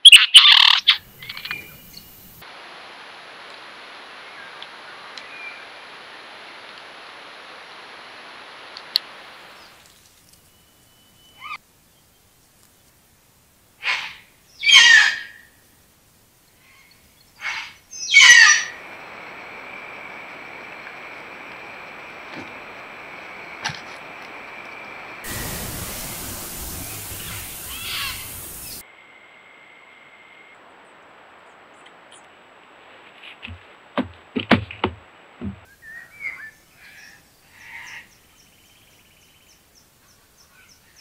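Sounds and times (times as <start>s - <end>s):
camera hiss: 0.8s - 10.6s, 23.6s - 28.8s
bird harsh calls: 13.8s - 15.4s, 16.6s - 18.8s, 25.3s - 28.8s
faint high whine: 18.7s - 32.8s.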